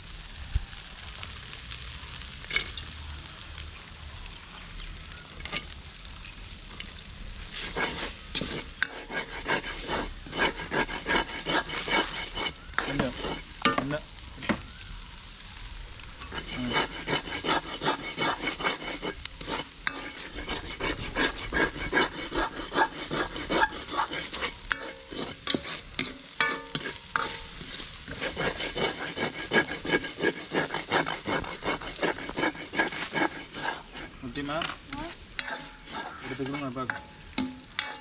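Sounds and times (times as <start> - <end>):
light sizzle: 0.0 - 38.0
ladle scraping metal wok: 7.4 - 14.6, 16.2 - 38.0.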